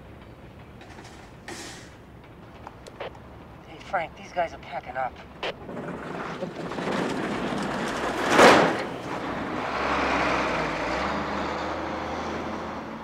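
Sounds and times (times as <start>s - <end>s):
truck engine running: 5.2s - 13.0s.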